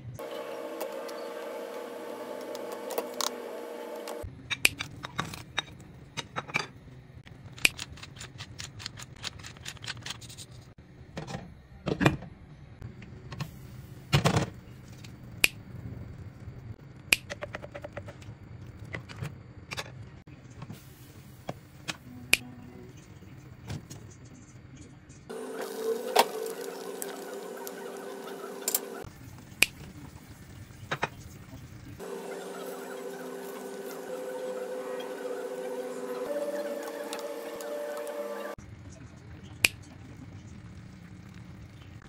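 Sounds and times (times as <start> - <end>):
steady hum: 0.0 - 4.3, 25.3 - 29.1, 32.0 - 38.6.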